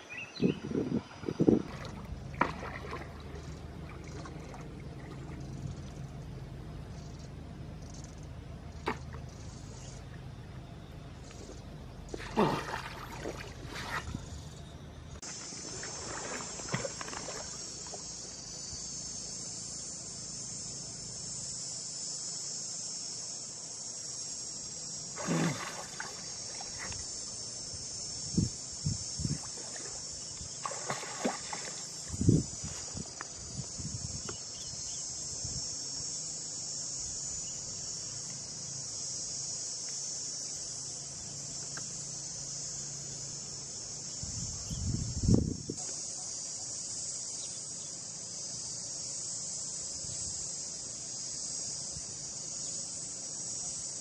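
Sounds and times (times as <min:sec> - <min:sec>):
insects droning: 0:00.0 - 0:54.0
splash-like rush: 0:01.6 - 0:05.4, 0:12.2 - 0:14.2, 0:25.2 - 0:26.9, 0:30.6 - 0:31.8.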